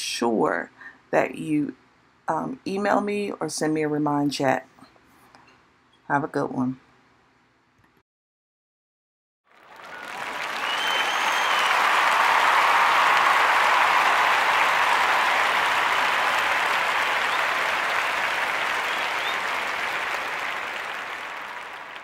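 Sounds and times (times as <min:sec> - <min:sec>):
audience applauding: 0:09.5 - 0:22.0.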